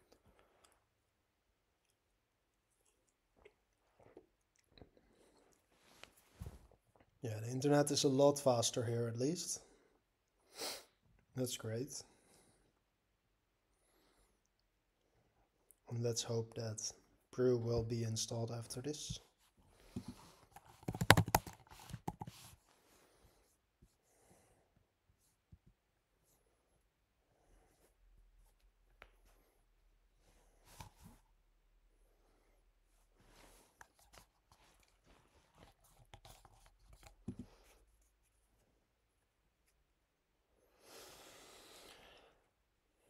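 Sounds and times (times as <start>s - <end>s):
laptop keyboard clicks: 20.8s - 22.3s.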